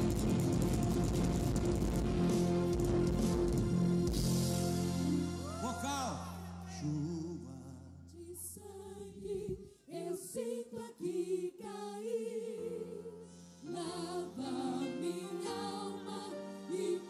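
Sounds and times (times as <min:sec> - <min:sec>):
choir singing gospel: 0:08.1 - 0:17.0.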